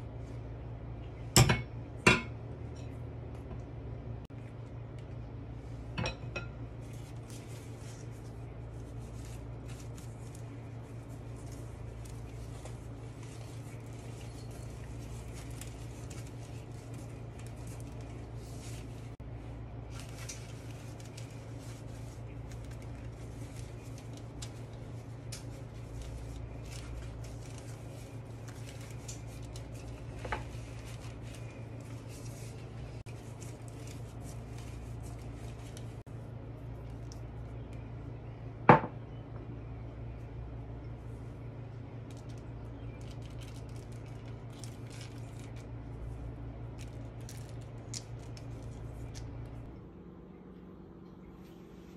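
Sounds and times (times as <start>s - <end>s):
rustling and crinkling of dough: 0.0s - 51.9s
steady low hum: 0.0s - 51.9s
parchment paper crinkling: 6.7s - 37.9s, 41.1s - 49.7s.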